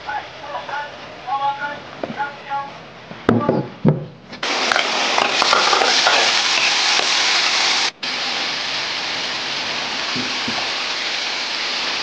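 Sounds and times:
steam hissing: 4.4 - 12.0.

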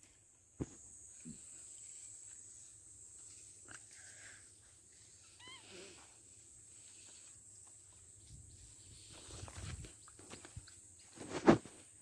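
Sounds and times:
high-pitched hiss: 0.0 - 12.0
footsteps on dirt path: 5.9 - 12.0.

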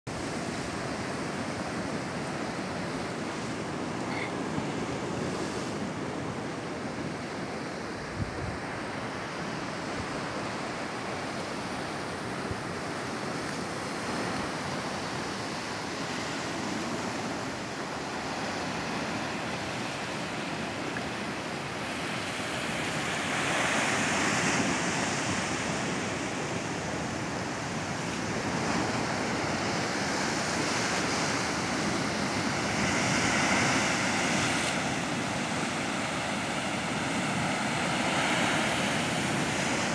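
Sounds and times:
wind on microphone: 8.0 - 8.9.

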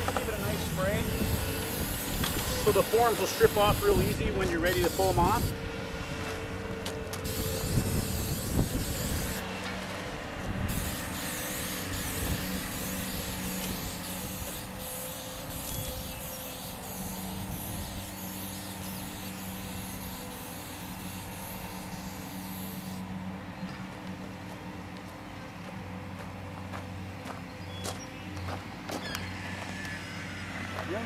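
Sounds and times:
low motor hum: 0.0 - 31.0
aerosol can hissing: 10.7 - 22.9.

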